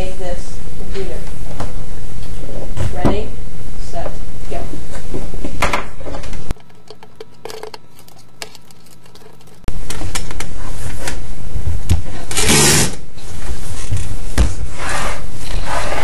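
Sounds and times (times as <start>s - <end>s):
small hard objects clattering: 6.5s - 9.7s.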